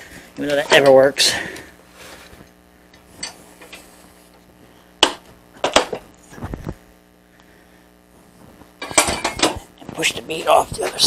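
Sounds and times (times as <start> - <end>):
metal knocks and clanks: 8.8 - 9.6.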